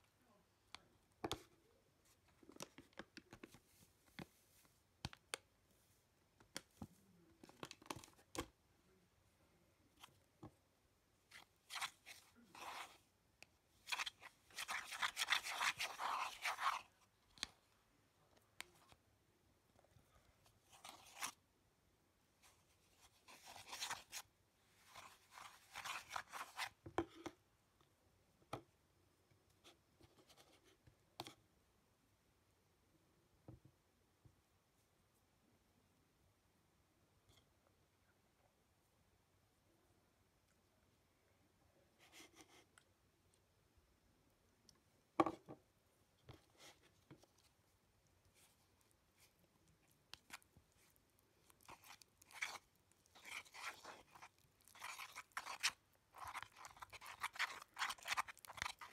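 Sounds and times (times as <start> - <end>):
spatula scraping a plastic bowl: 13.9 - 16.9, 24.9 - 26.8, 50.1 - 58.9.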